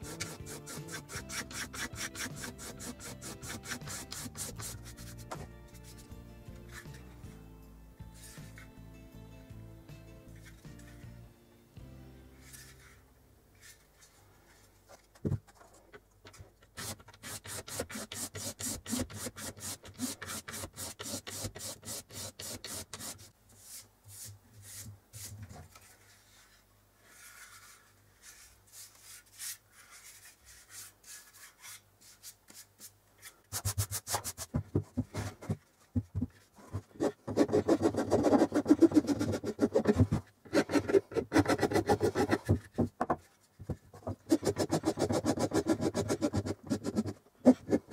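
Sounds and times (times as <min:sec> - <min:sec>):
sandpaper rubbing on wood: 0:00.0 - 0:05.3, 0:16.8 - 0:23.3, 0:37.0 - 0:40.0, 0:40.6 - 0:42.5, 0:44.3 - 0:47.9.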